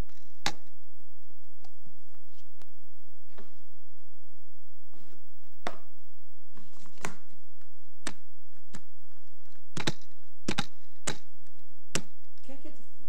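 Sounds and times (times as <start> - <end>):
low hum: 0.0 - 13.0
plastic cups clicking on table: 9.5 - 11.3.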